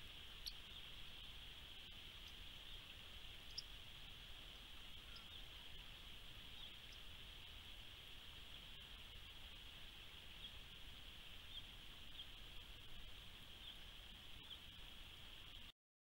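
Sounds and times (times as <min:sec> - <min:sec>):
faint high chirps: 0:00.0 - 0:07.2, 0:11.4 - 0:12.9, 0:13.5 - 0:14.8
faint steady hiss: 0:00.0 - 0:15.7.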